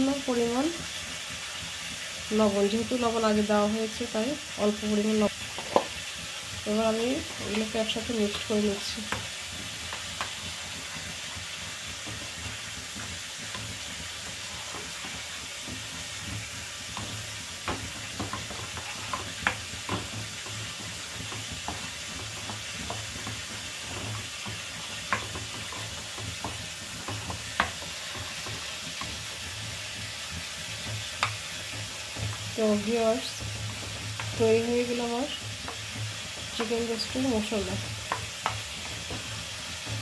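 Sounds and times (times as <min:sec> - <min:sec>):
chicken sizzling in oil: 0:00.0 - 0:40.0
spoon stirring thick marinade: 0:09.1 - 0:39.9.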